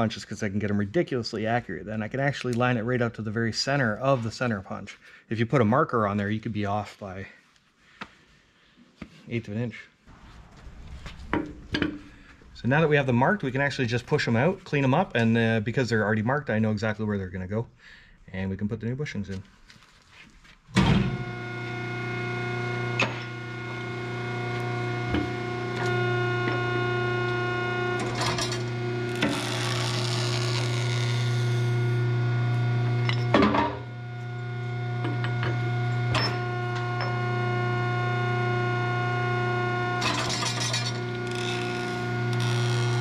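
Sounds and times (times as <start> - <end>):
hydraulic press humming: 20.7 - 43.0.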